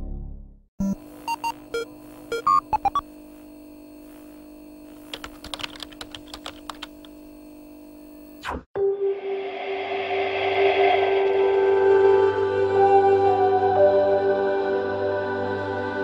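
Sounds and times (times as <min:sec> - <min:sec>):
short electronic beeps: 0:00.8 - 0:03.0
electrical hum: 0:00.8 - 0:08.6
keyboard typing clicks: 0:05.1 - 0:07.1.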